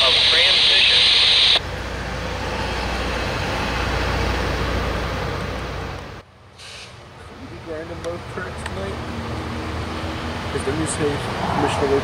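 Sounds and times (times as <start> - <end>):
broad rushing noise: 10.7 - 12.0.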